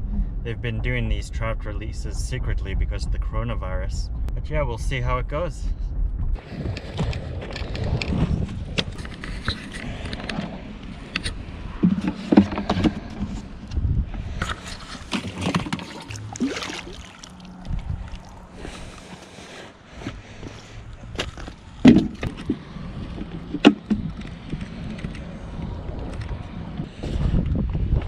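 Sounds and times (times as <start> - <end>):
plastic pail clatter: 11.8 - 13.4, 14.4 - 17.1
plastic pail lid rattling: 11.8 - 13.4, 14.4 - 16.2.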